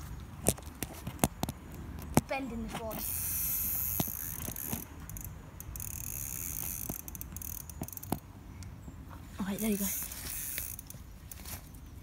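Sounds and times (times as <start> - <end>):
fishing reel ratcheting: 2.9 - 8.2, 9.6 - 11.0.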